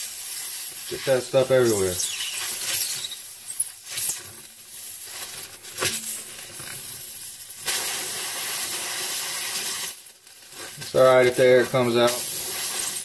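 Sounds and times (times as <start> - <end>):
air hissing from a tire: 0.0 - 10.0.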